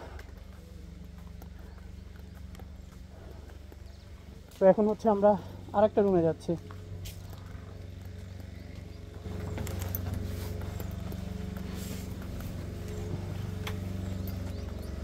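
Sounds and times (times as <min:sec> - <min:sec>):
low mechanical hum: 0:00.0 - 0:15.0
footsteps on wooden stairs: 0:06.6 - 0:15.0.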